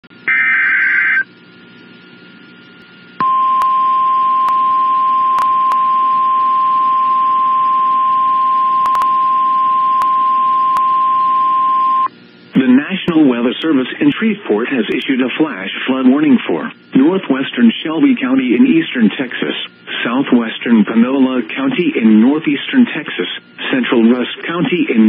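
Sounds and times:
screeching digital header burst: 0:00.3 - 0:01.2
steady warning alarm tone: 0:03.2 - 0:12.1.

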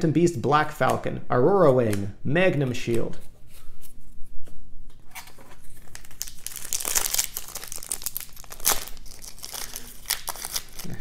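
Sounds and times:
foil wrapper crinkling: 0:05.2 - 0:11.0.

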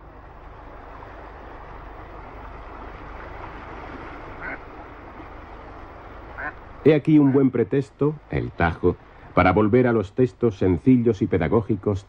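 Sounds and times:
flowing river water: 0:00.0 - 0:12.0
duck quack: 0:04.4 - 0:04.6, 0:06.4 - 0:06.6.

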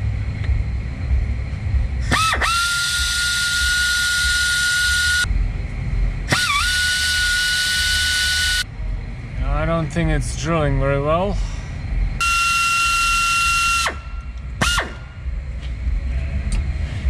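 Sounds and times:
low rumble: 0:00.0 - 0:17.0
pneumatic drill whining: 0:02.0 - 0:05.3, 0:06.3 - 0:08.6.

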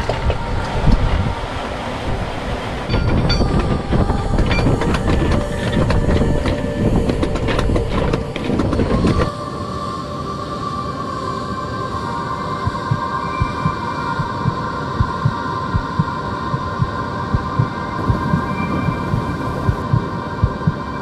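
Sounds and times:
wind rumble on microphone: 0:00.0 - 0:09.4, 0:12.5 - 0:21.0
steady tone: 0:12.6 - 0:21.0.

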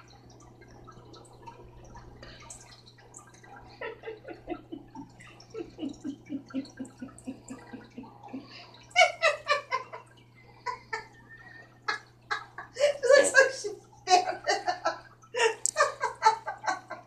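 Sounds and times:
low steady hum: 0:00.0 - 0:17.0
person giggling: 0:03.8 - 0:10.0, 0:11.9 - 0:17.0.

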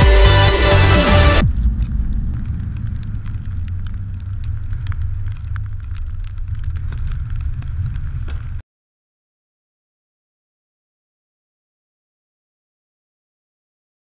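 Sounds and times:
wind buffeting microphone: 0:01.4 - 0:08.6.

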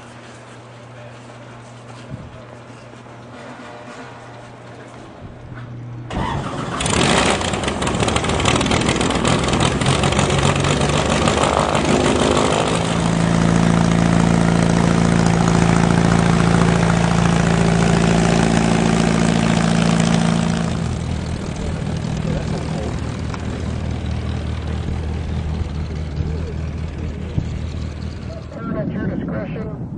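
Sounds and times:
aircraft engine and propeller: 0:06.0 - 0:29.8.

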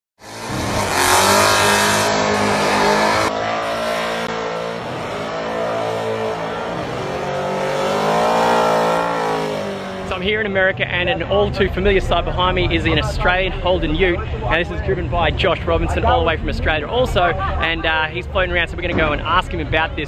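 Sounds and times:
engine revving hard: 0:00.2 - 0:10.2.

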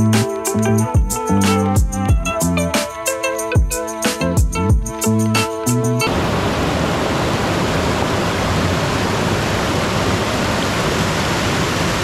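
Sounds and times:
waterfall rushing: 0:06.1 - 0:12.0.

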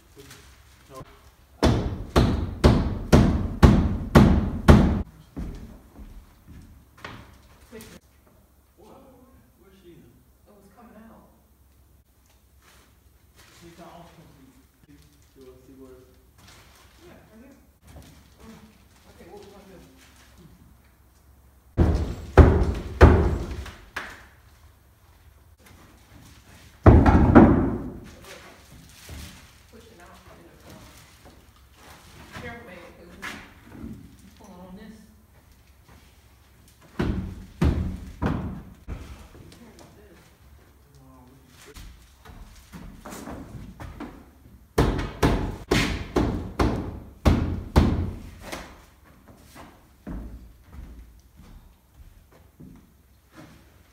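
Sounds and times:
heavy thuds on a door: 0:01.6 - 0:05.5, 0:21.8 - 0:23.6, 0:26.8 - 0:28.0, 0:36.9 - 0:39.1, 0:44.8 - 0:48.3.

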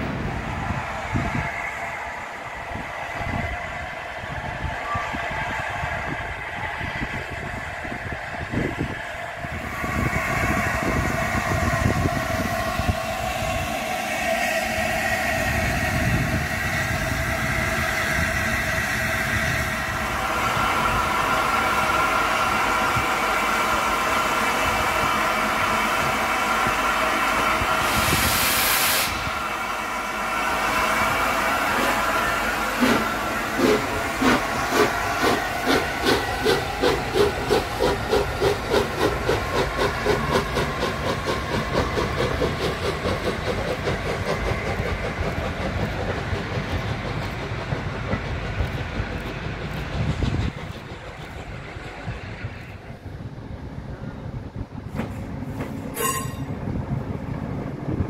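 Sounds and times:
steam locomotive hissing: 0:00.0 - 0:56.8
loud blast of steam: 0:09.5 - 0:44.7.

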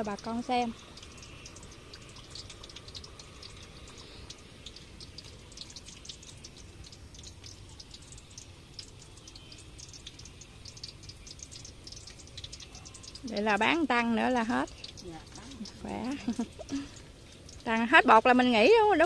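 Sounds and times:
battered food frying in oil: 0:00.0 - 0:19.0.

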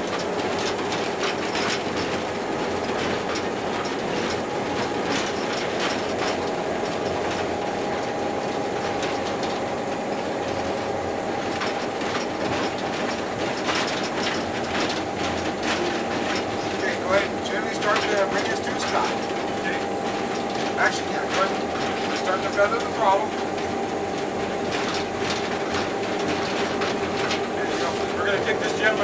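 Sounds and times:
constant whine: 0:00.0 - 0:29.0
locomotive engine drone: 0:00.0 - 0:29.0
wheels and cab rattling: 0:00.0 - 0:29.0.

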